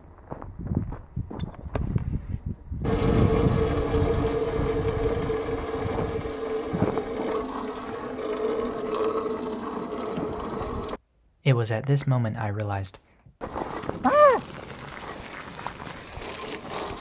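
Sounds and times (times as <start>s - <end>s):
water from hose rushing into tank: 2.8s - 11.0s.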